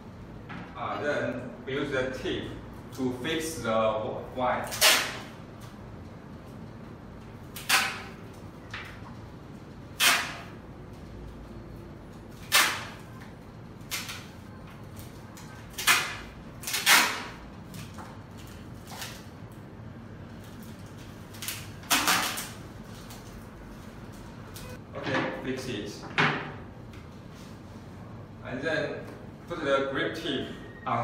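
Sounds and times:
tape ripping off roll: 15.7s - 17.4s, 21.3s - 23.3s.

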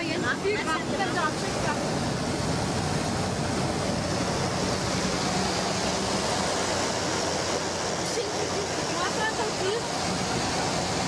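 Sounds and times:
aircraft engine and propeller drone: 0.0s - 11.0s
air rushing noise: 0.6s - 11.0s.

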